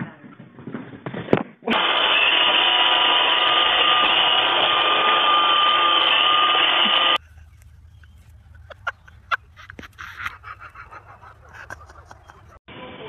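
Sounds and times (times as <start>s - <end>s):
robot vacuum motor hum: 1.7s - 7.2s.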